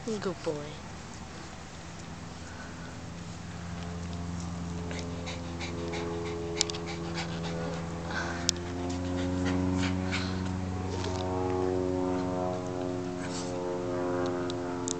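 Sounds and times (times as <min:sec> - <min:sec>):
small dog panting: 0:04.2 - 0:11.1.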